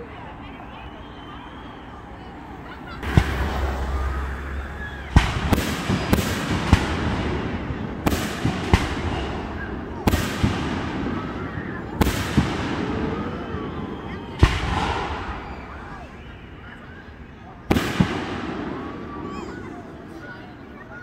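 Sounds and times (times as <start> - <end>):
firework shells bursting: 5.0 - 11.3.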